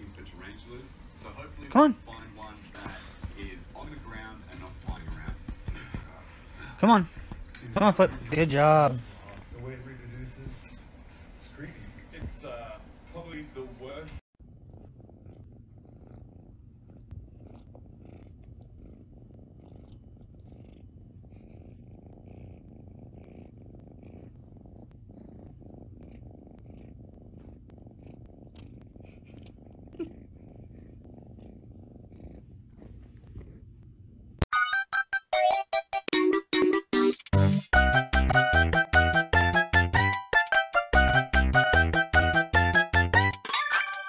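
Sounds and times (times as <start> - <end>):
cat purring: 0.0 - 34.4.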